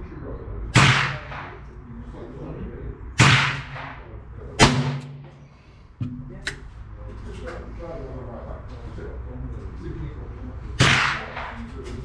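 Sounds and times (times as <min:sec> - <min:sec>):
revolver shots with echo: 0:00.8 - 0:01.7, 0:03.2 - 0:05.4, 0:10.8 - 0:11.7.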